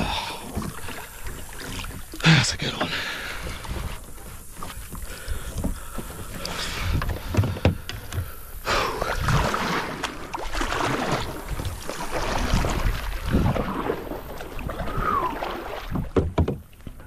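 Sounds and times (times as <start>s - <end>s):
paddle strokes splashing in water: 0.0s - 17.0s
paddle knocking on plastic hull: 1.6s - 8.5s, 15.9s - 17.0s.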